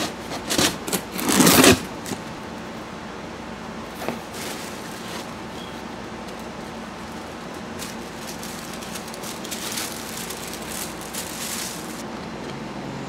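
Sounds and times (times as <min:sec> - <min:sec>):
cardboard scraping: 0:00.0 - 0:02.3, 0:03.9 - 0:05.8, 0:06.4 - 0:12.0
packing tape ripping: 0:00.0 - 0:02.3, 0:07.1 - 0:12.0.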